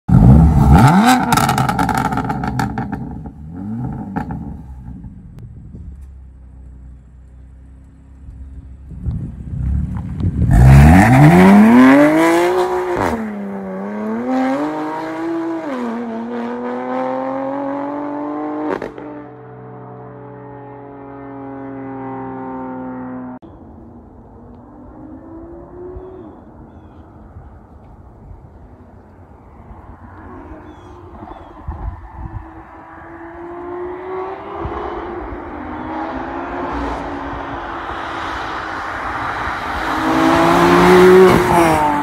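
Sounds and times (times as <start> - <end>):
car engine revving and accelerating: 0.1 - 5.1, 9.4 - 23.4, 29.4 - 42.0.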